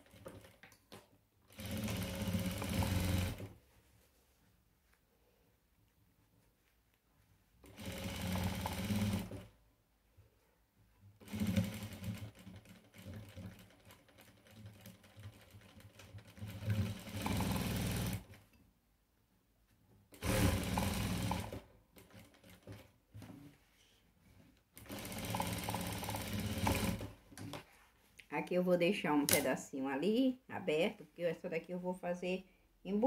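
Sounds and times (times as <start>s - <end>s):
sewing machine stitching: 1.5s - 3.5s, 7.6s - 9.5s, 11.2s - 18.4s, 20.2s - 22.9s, 24.8s - 27.2s.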